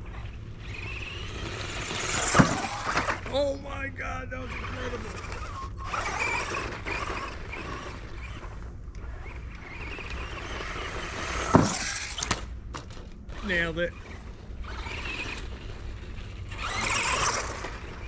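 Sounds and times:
electric toy car motor whining: 0:00.0 - 0:03.5, 0:04.4 - 0:18.0
toy car hitting plastic ramp: 0:01.5 - 0:03.3, 0:09.0 - 0:13.0, 0:16.6 - 0:18.0.

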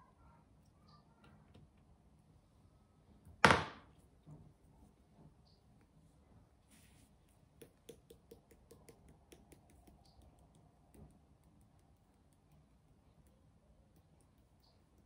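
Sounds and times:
light clicks and taps on plastic bottle: 0:07.6 - 0:12.6.

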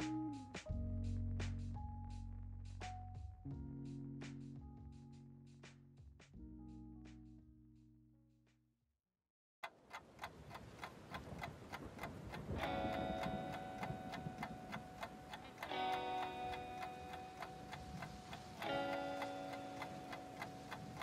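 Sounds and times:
held chords: 0:00.0 - 0:05.0, 0:12.5 - 0:21.0
ticking beat: 0:09.6 - 0:21.0.

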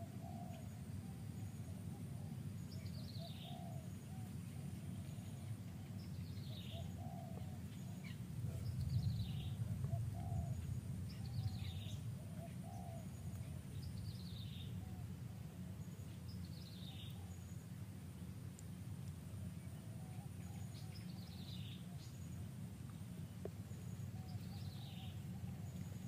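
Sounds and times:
bird calling: 0:00.0 - 0:17.6, 0:23.8 - 0:26.0
fainter lower bird calls: 0:00.0 - 0:17.7, 0:19.5 - 0:22.5, 0:23.7 - 0:26.0
low rumble: 0:07.8 - 0:12.4.

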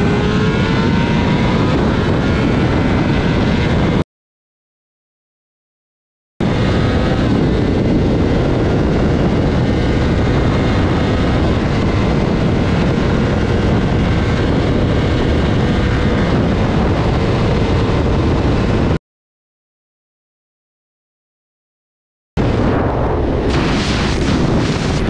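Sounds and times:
motorcycle engine at high revs: 0:00.0 - 0:04.0, 0:06.4 - 0:19.0
wind rush over microphone: 0:00.0 - 0:04.0, 0:06.4 - 0:19.0, 0:22.4 - 0:25.0.

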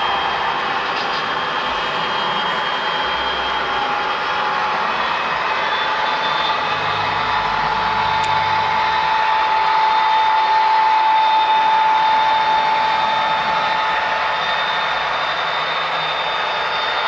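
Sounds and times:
steady high whine: 0:00.0 - 0:17.0.

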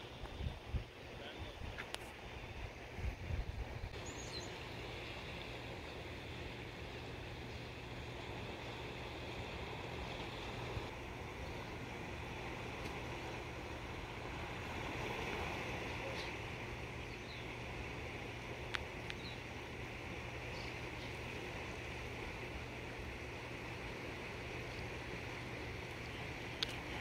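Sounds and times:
faint low hum: 0:00.0 - 0:27.0
rushing outdoor noise: 0:00.0 - 0:27.0
faint clicks: 0:18.7 - 0:19.3, 0:25.9 - 0:26.9.

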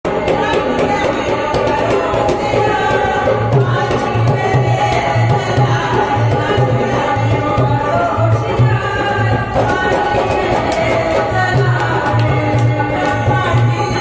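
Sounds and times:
hand drum beat: 0:00.1 - 0:14.0
women singing through microphones: 0:00.1 - 0:14.0
hand clapping: 0:11.8 - 0:14.0.

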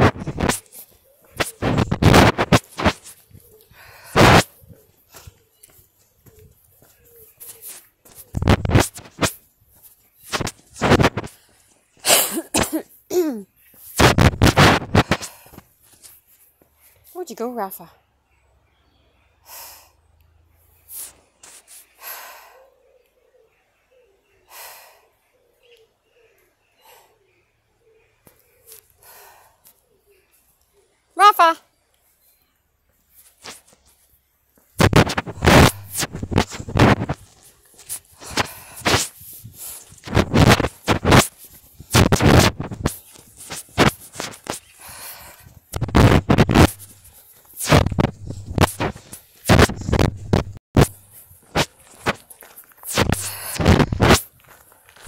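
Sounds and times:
fingers scraping phone microphone: 0:00.0 - 0:05.3, 0:06.3 - 0:09.4, 0:10.2 - 0:11.4, 0:13.8 - 0:15.4, 0:34.8 - 0:44.8, 0:45.4 - 0:55.0
sniffs and puffs of breath: 0:00.0 - 0:17.2, 0:19.2 - 0:31.2, 0:32.1 - 0:55.0.

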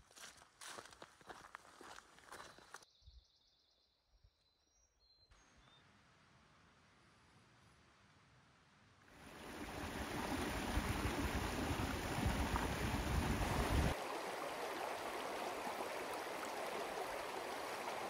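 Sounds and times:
creek water rushing: 0:09.2 - 0:18.0.

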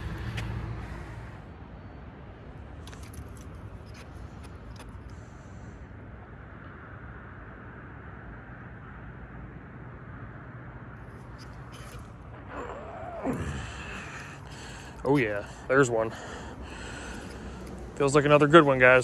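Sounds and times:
outdoor background noise: 0:00.0 - 0:19.0.

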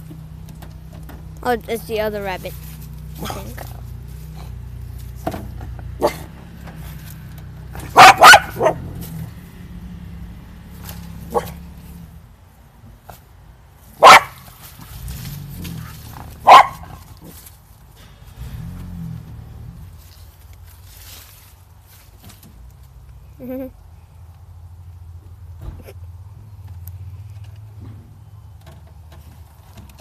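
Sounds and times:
dog barking: 0:06.0 - 0:06.3, 0:07.8 - 0:08.9, 0:11.3 - 0:11.6, 0:14.0 - 0:14.4, 0:16.4 - 0:17.0.

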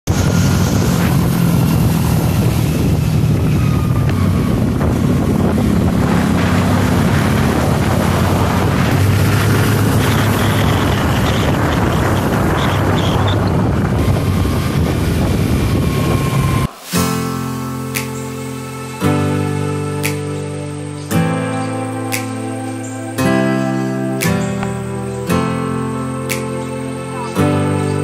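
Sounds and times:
wind on microphone: 0:00.0 - 0:28.0
motorcycle engine running: 0:00.1 - 0:16.7.

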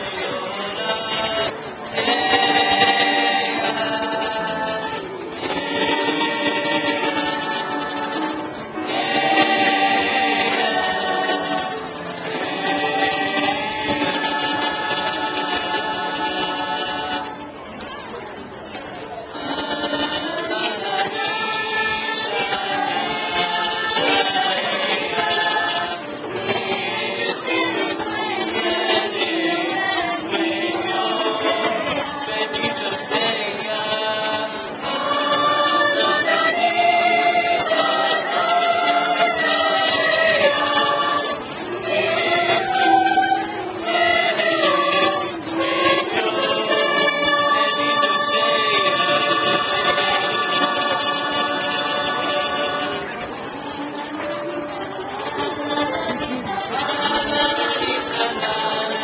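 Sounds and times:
youth choir singing: 0:00.0 - 0:18.0, 0:19.2 - 0:59.0.

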